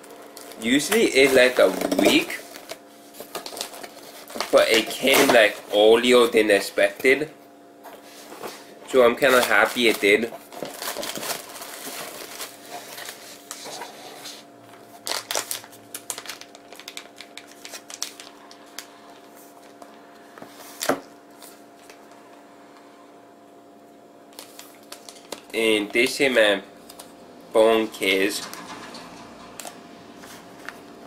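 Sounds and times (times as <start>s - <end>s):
cardboard and plastic rustling: 0.0s - 5.8s, 7.9s - 22.1s, 24.3s - 26.1s.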